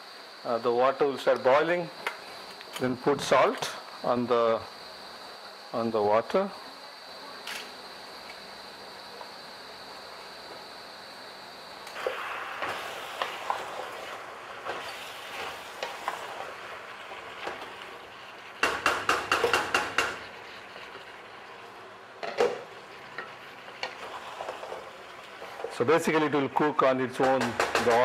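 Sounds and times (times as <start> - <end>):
curry sizzling in oil: 11.8 - 26.5.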